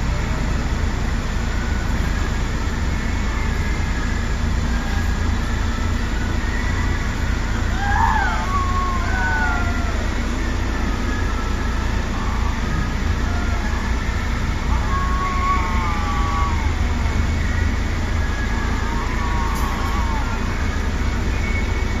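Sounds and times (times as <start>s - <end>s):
bus engines idling: 0.0s - 22.0s
cats yowling: 7.7s - 17.4s, 18.3s - 20.8s.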